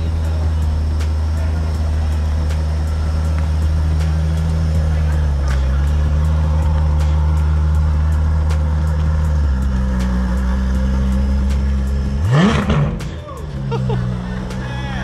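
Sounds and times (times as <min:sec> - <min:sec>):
car engine pulling away: 0:00.0 - 0:15.0
engine revving sharply: 0:02.1 - 0:15.0.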